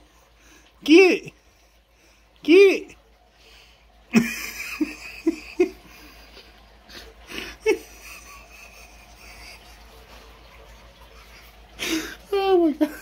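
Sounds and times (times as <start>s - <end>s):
person laughing in breathy bursts: 4.1s - 10.1s.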